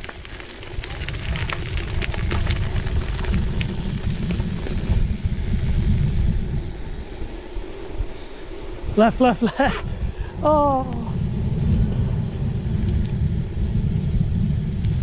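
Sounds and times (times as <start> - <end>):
bike rattling and clicking: 0.0 - 7.5
wind and tyres rumbling: 0.0 - 15.0.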